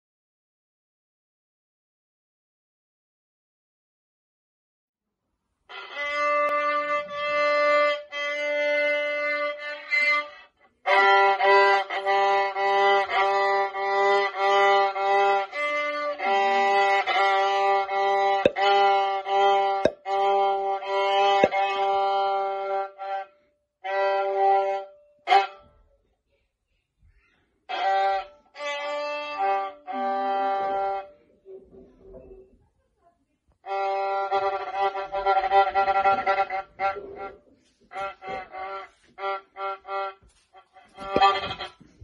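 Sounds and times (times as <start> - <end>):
solo violin: 5.7 - 25.8, 27.7 - 31.2, 33.6 - 42.0.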